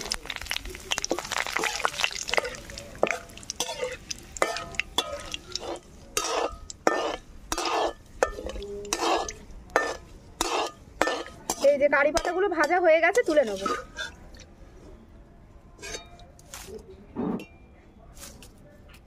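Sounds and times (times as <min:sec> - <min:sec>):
leaves sizzling in hot oil: 0:00.0 - 0:14.1
skimmer scraping against wok: 0:00.0 - 0:14.3.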